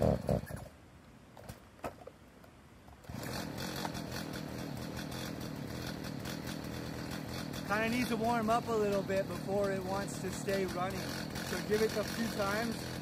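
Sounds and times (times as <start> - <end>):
chainsaw engine starting and idling: 3.0 - 13.0.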